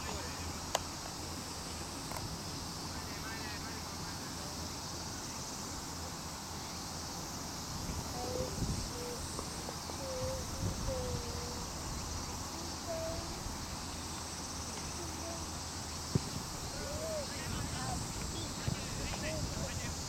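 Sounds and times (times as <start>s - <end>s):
high-pitched insect chorus: 0.0s - 20.0s
distant voices calling: 7.9s - 20.0s.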